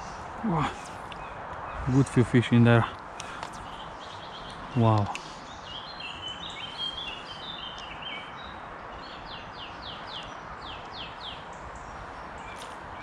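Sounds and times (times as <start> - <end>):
songbirds singing: 0.0 - 13.0
steady background hiss: 0.0 - 13.0.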